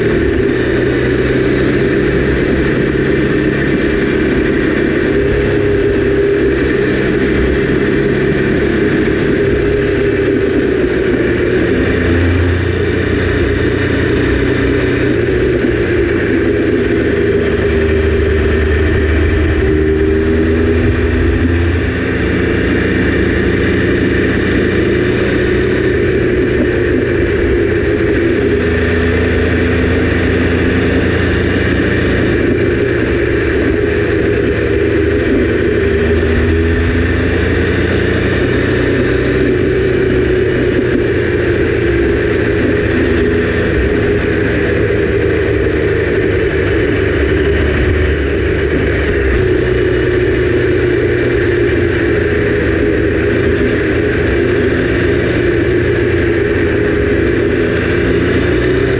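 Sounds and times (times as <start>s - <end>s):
motorcycle engine cruising: 0.0s - 58.9s.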